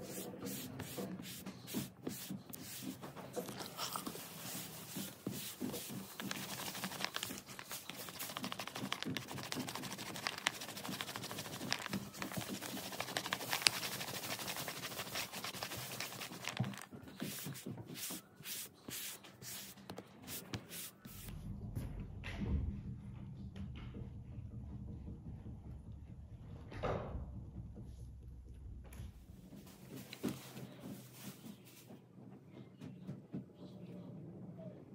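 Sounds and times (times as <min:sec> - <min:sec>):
paper crackling and scraping: 0:00.0 - 0:21.3.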